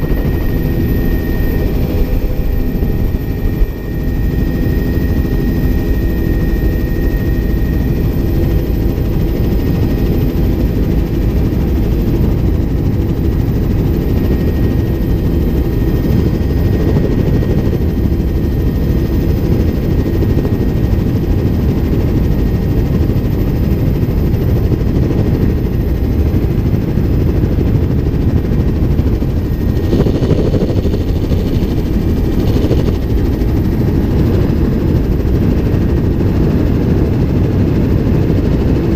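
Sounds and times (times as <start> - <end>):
helicopter rotor and engine rumble: 0.0 - 38.9.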